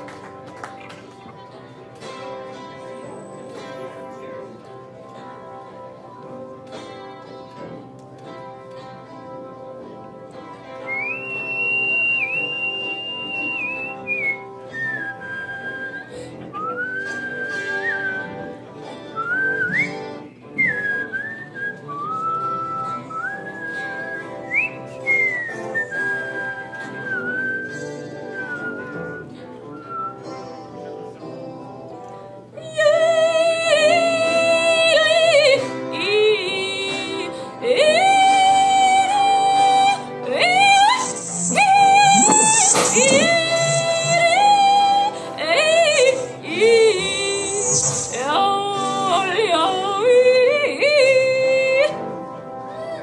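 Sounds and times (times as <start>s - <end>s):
sustained instrumental accompaniment: 0.0s - 53.0s
whistled melody: 10.8s - 30.8s, 39.9s - 44.3s, 47.2s - 48.5s
woman singing operatically: 32.6s - 52.1s, 52.7s - 53.0s.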